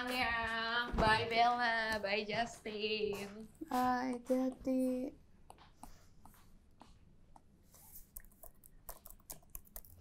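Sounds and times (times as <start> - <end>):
laptop keys tapping: 5.4 - 10.0.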